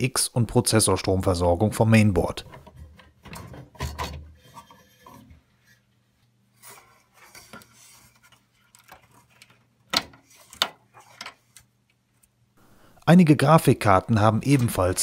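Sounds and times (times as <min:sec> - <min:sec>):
plastic connectors scraping and rattling: 0:06.7 - 0:12.3.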